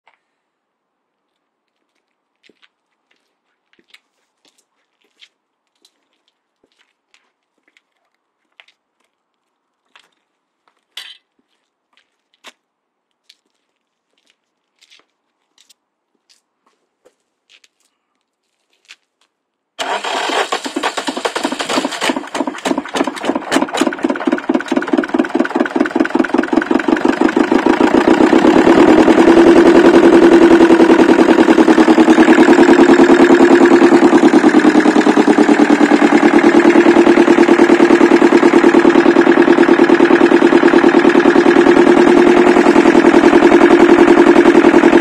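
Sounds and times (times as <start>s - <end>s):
diesel engine starting and running: 19.8s - 45.0s.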